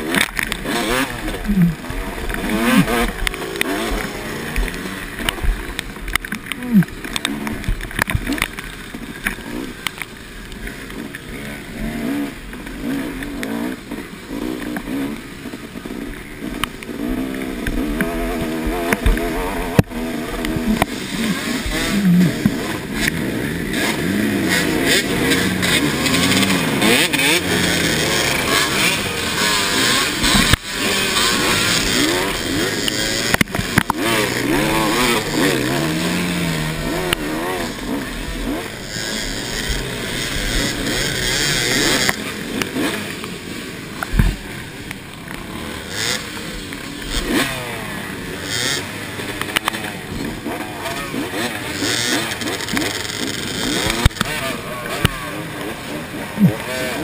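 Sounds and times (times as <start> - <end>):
dirt bike engine revving: 0.0 - 57.0.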